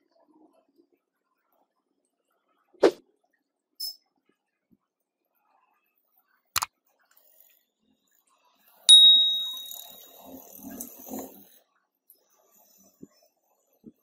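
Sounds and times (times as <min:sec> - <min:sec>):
sharp snap with metallic ring: 0:08.9 - 0:10.3.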